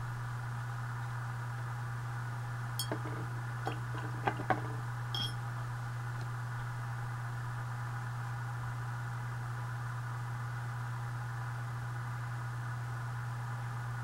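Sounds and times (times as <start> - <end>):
low electrical hum: 0.0 - 14.0
metal tin ping: 5.2 - 5.4.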